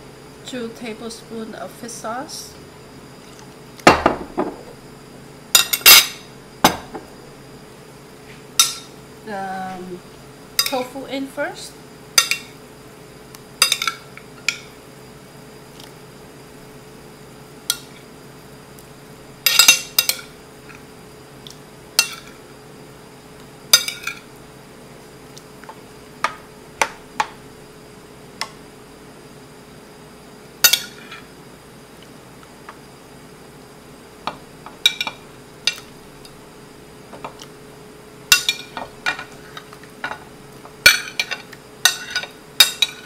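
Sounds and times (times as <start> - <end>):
metal spoon clinking on ceramic: 40.9 - 43.0.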